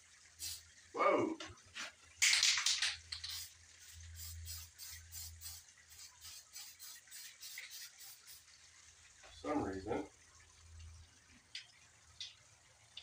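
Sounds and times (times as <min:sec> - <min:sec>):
spray can hissing: 0:00.4 - 0:00.6, 0:03.1 - 0:08.4.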